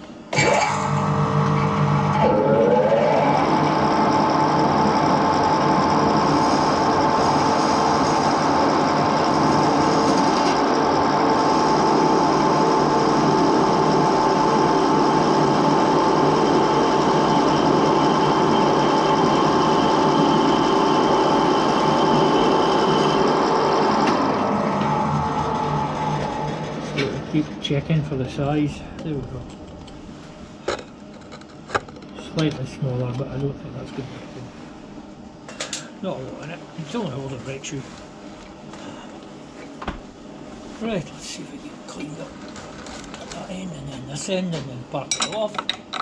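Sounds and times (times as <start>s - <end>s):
lathe whining: 0.0s - 28.7s.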